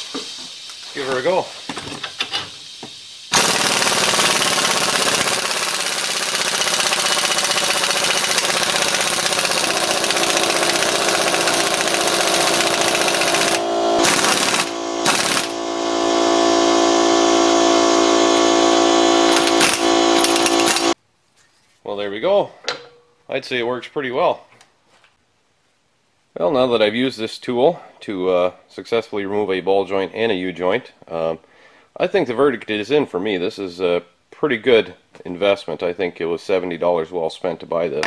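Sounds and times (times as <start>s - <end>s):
impact wrench hammering: 3.3s - 15.7s, 18.2s - 21.0s.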